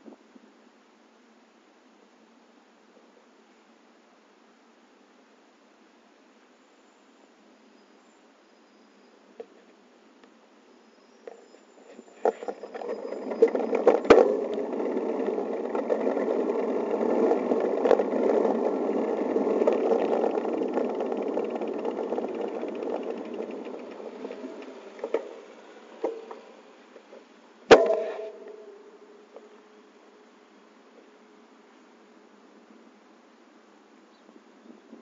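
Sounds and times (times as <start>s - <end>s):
bicycle rolling: 11.3s - 29.3s
bicycle clicks: 12.4s - 28.6s
sharp knock: 27.7s - 28.6s.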